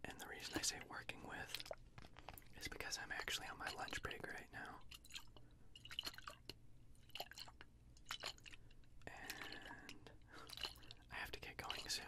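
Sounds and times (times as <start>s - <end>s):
water sloshing in glass jar: 2.4s - 12.0s.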